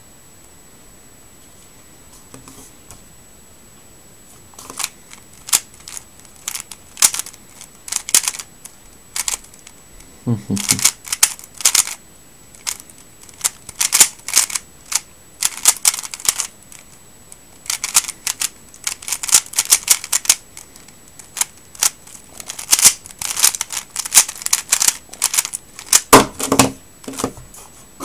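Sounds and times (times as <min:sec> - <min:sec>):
plastic puzzle cube clacking: 0:04.6 - 0:09.8, 0:10.6 - 0:12.0, 0:12.6 - 0:17.0, 0:17.6 - 0:27.3.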